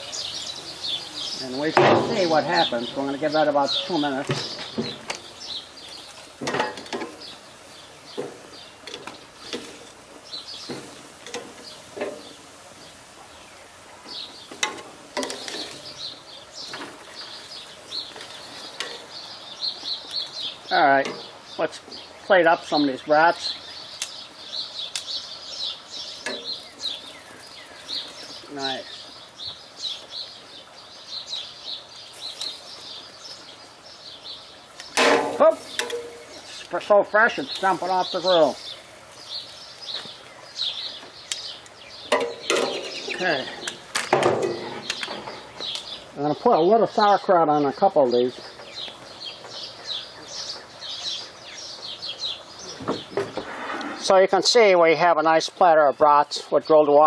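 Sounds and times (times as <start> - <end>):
birds chirping: 0.0 - 57.0
outdoor background noise: 0.0 - 57.0
metal tongs clacking on grill grate: 6.0 - 7.3, 8.8 - 10.0, 10.7 - 12.3, 14.5 - 16.1, 18.0 - 19.1, 26.2 - 27.1, 34.8 - 36.8, 41.2 - 46.0.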